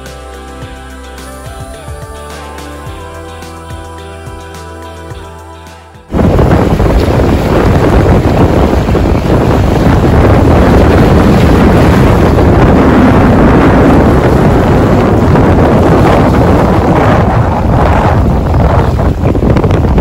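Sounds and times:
waves washing against rocks: 6.1s - 20.0s
wind blowing across microphone: 6.1s - 20.0s.

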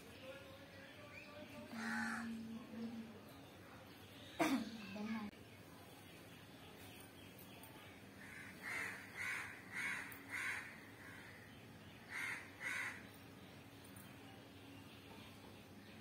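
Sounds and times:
crow cawing: 1.8s - 2.3s, 8.2s - 11.4s, 12.1s - 13.1s.

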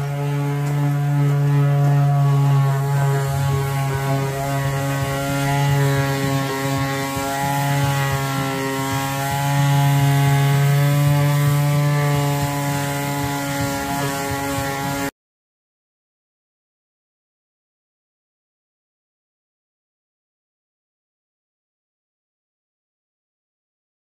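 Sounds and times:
orbital sander on wood: 0.0s - 15.1s.

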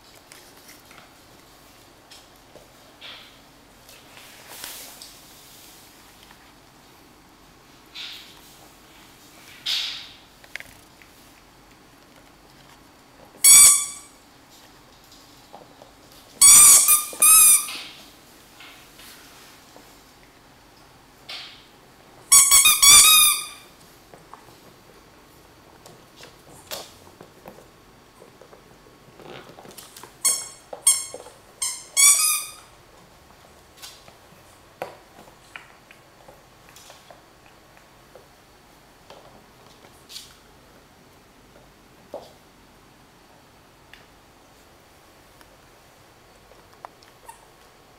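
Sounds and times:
squeaky dog toy squeaking: 13.4s - 14.1s, 16.4s - 17.8s, 22.3s - 23.7s, 30.2s - 32.7s.

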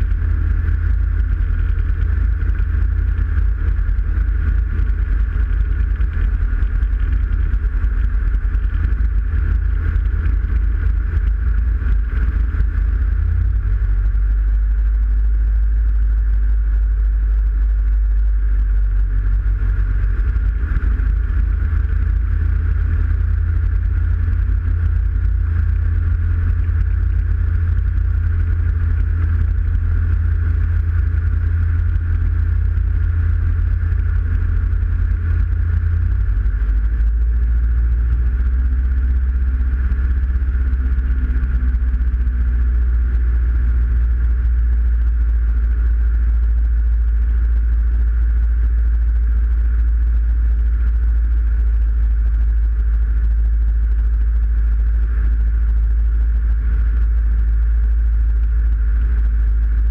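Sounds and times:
aircraft engine and propeller droning: 0.0s - 43.2s.

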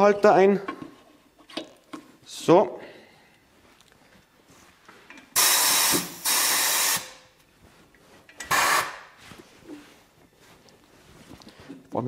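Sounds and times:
compressed air hissing: 5.4s - 7.2s, 8.5s - 9.1s.

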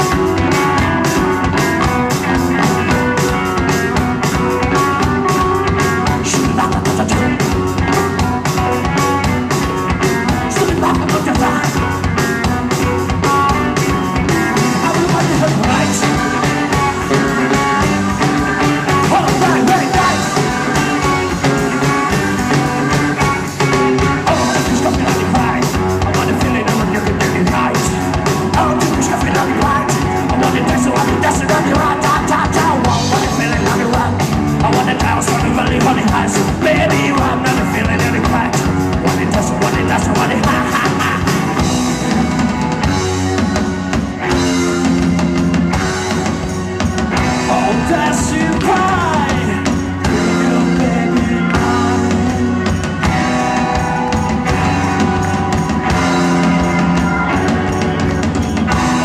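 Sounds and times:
drum kit beat: 0.0s - 59.0s
live rock band: 0.0s - 59.0s.

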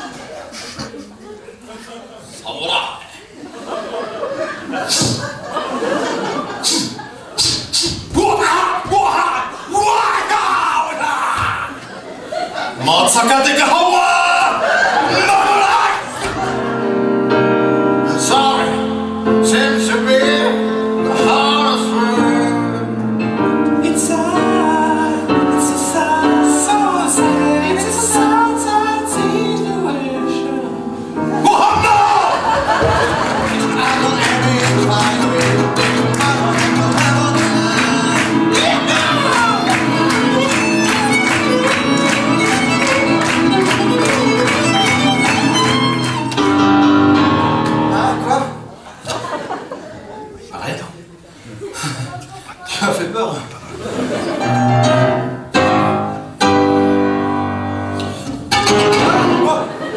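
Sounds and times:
piano accompaniment: 16.2s - 48.8s, 54.0s - 59.9s
person singing: 18.0s - 23.0s, 23.6s - 32.3s, 33.4s - 46.6s.

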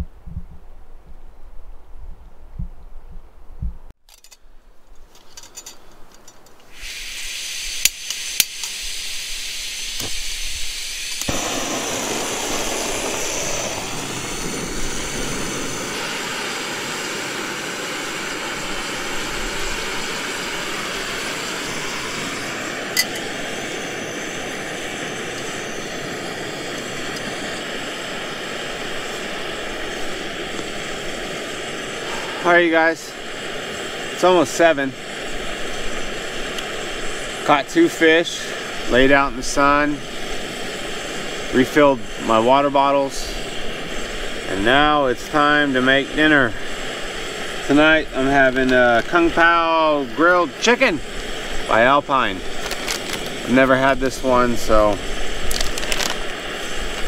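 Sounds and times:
gas hissing: 6.2s - 57.0s
burner rushing burn: 6.7s - 57.0s
igniter clicks: 7.7s - 8.9s.

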